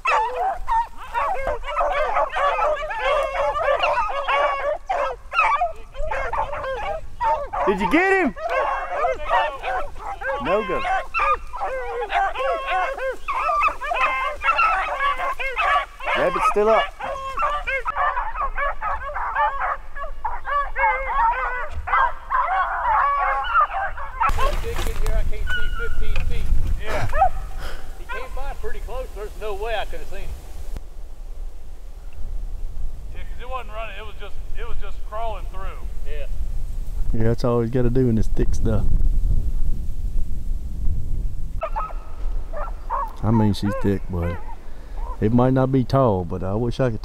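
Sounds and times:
pack of dogs baying: 0.0 - 24.6, 25.4 - 26.0, 26.8 - 29.7, 41.6 - 45.3.

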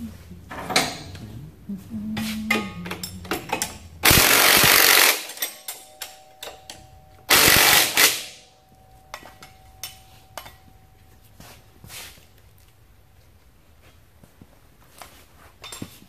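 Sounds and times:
clicks of metal parts: 0.5 - 1.2, 2.5 - 8.4
impact wrench hammering: 2.5 - 10.6.

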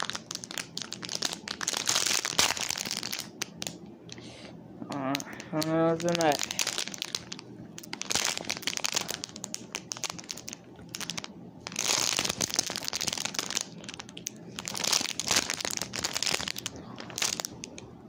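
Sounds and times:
packaging crinkling and rustling: 0.0 - 4.2, 5.1 - 17.9.

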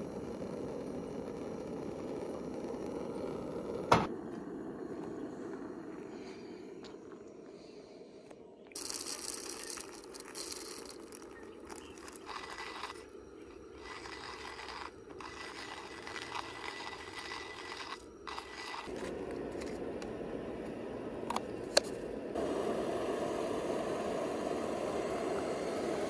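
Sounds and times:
hand coffee grinder grinding beans: 8.8 - 20.2.

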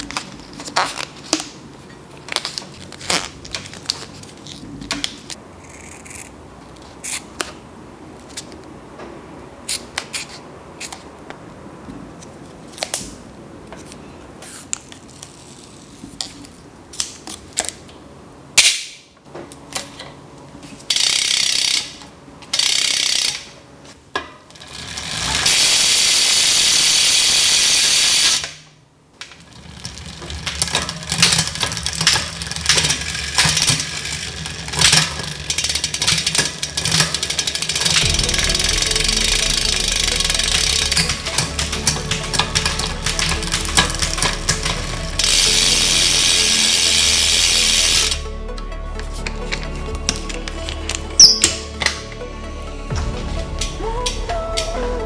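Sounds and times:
bicycle parts clicking: 20.8 - 23.6, 24.2 - 28.6, 29.2 - 52.1
bicycle chain whirring and ticking: 20.9 - 23.6, 24.5 - 28.5, 29.3 - 48.2
air hiss bursts: 25.4 - 28.5, 45.2 - 48.2.

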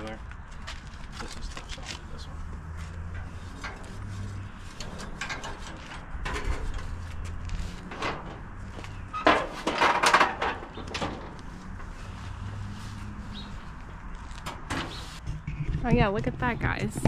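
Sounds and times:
metal clatter: 4.7 - 8.5, 9.1 - 11.4
sheet metal clanking and rattling: 4.7 - 11.4, 14.4 - 16.3.

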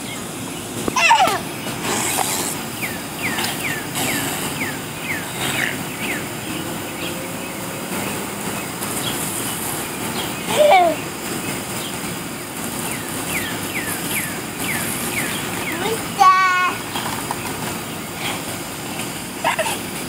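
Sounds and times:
lawn sprinkler hissing: 0.0 - 20.0
child squealing: 1.0 - 1.4.

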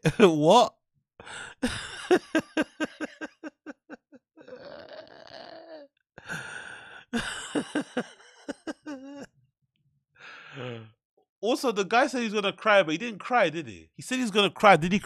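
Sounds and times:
man laughing: 0.0 - 0.7, 1.3 - 4.7, 7.1 - 9.3
breathy wheezing exhale: 6.2 - 7.2, 10.2 - 10.9.

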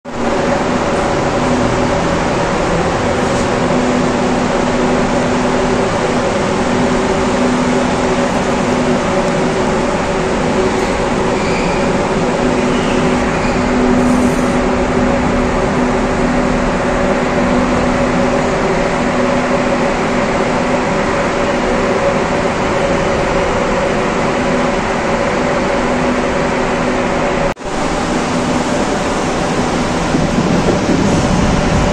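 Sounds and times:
exhaust fan running: 0.0 - 31.9.

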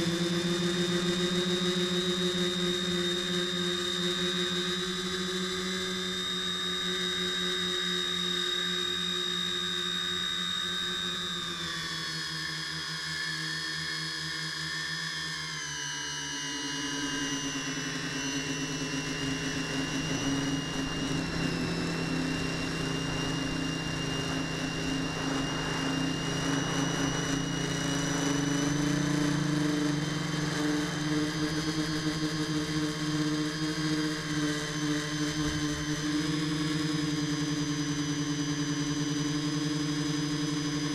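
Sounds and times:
drone motors buzzing: 18.4 - 34.5.

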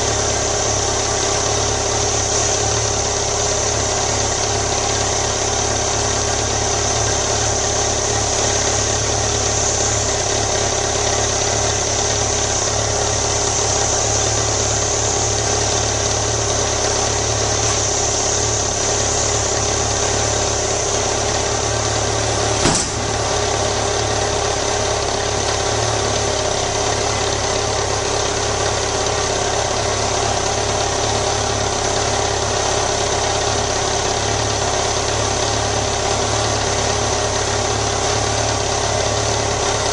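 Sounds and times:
motorcycle engine idling: 0.0 - 39.9
sharp click: 22.6 - 23.1.

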